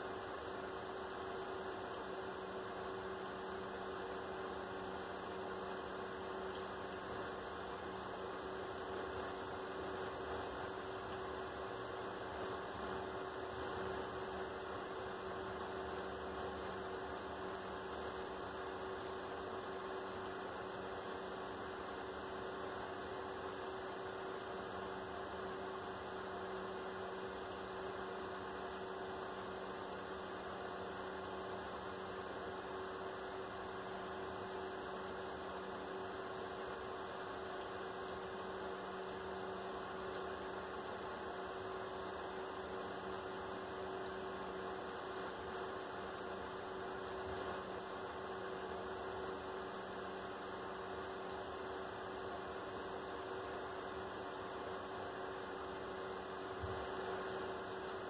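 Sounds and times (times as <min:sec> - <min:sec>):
electrical hum with faint hiss: 0:00.0 - 0:58.0.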